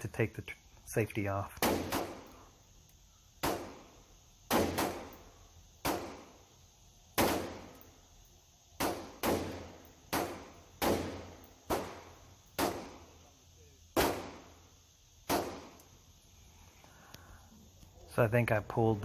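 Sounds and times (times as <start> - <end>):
rifle gunshots echoing indoors: 1.6 - 2.4, 4.5 - 6.3, 7.2 - 7.8, 8.8 - 13.1.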